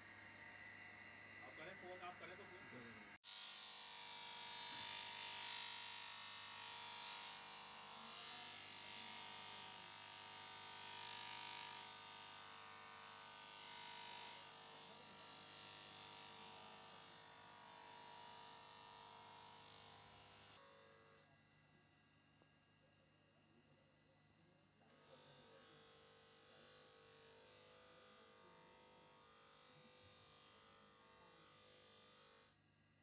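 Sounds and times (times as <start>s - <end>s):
buffing wheel motor whine: 3.3s - 20.6s.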